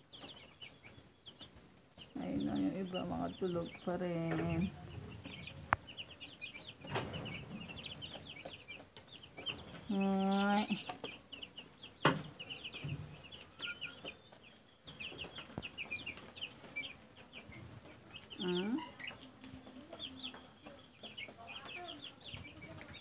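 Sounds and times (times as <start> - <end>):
chicks peeping: 0.0 - 23.0.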